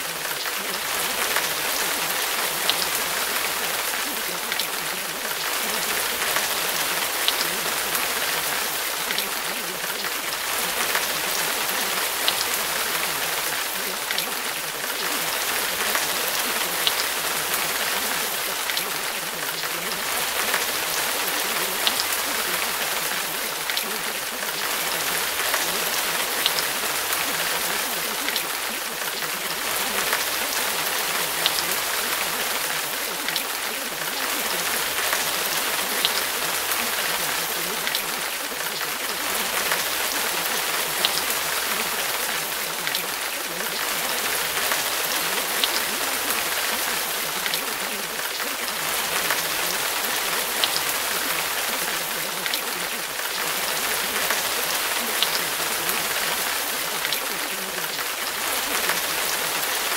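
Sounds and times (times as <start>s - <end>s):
steady rain: 0.0s - 59.9s.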